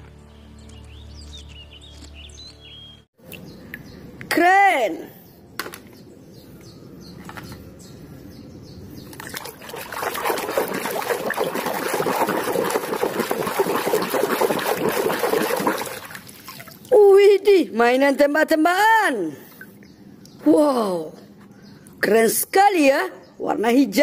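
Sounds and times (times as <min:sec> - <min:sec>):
hand splashing in water: 0:09.2 - 0:16.9.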